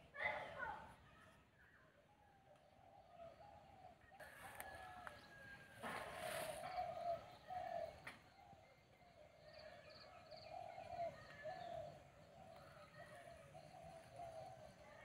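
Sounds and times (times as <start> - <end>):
dove-like cooing: 2.8 - 15.0
rustle: 5.7 - 7.0.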